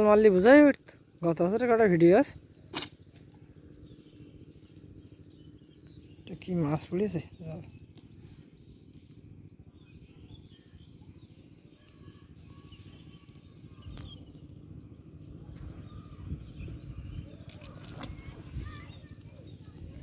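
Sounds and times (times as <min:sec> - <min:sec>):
low steady rumble: 0:00.0 - 0:20.0
faint bird chirps: 0:07.3 - 0:20.0.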